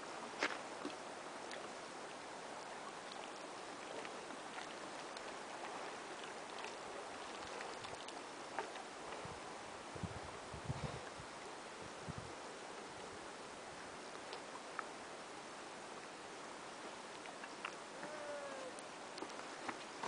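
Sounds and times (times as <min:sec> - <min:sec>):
small waves lapping on rocks: 0:00.2 - 0:09.7
light splashes: 0:02.6 - 0:09.2.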